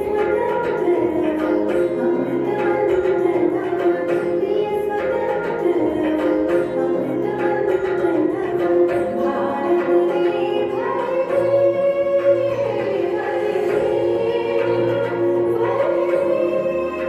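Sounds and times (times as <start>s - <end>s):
women singing: 0.0s - 17.0s.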